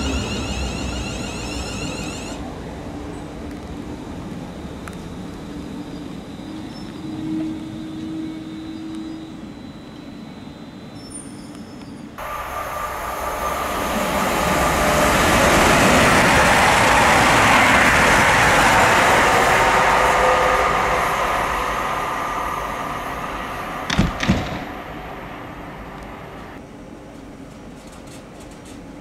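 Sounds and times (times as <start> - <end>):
diesel train passing at speed: 0.0 - 11.0, 12.0 - 27.8
sharp thumps: 23.9 - 24.8.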